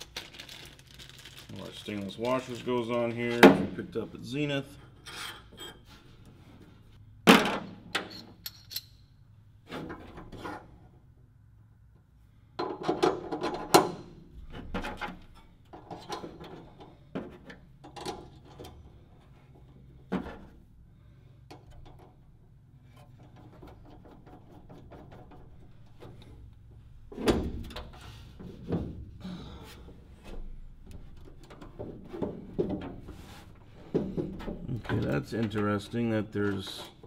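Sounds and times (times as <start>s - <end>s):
small metal parts clinking: 8.1s - 9.1s.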